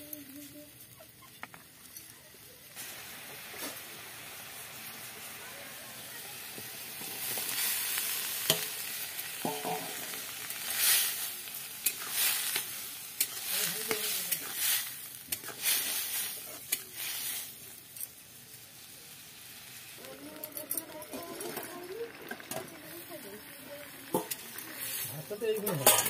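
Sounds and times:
food sizzling in hot oil: 0.0 - 26.0
ladle clinking against pan: 9.4 - 10.0.

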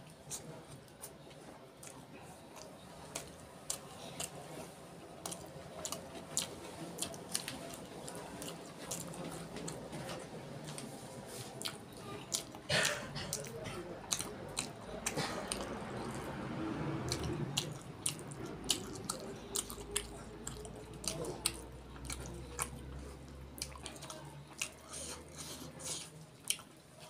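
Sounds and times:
wet chewing: 1.8 - 27.0.

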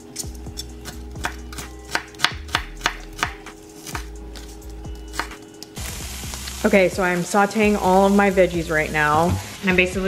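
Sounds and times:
knife chopping on cutting mat: 1.2 - 4.5.

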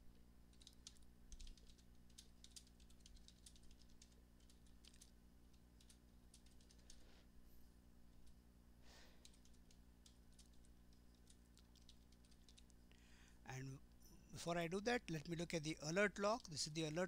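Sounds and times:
faint keyboard typing: 0.0 - 7.3, 8.1 - 13.0, 14.8 - 17.0.

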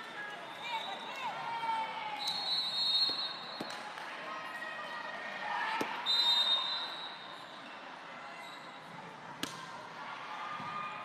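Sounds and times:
whistle blast: 2.2 - 3.7, 6.0 - 7.2.

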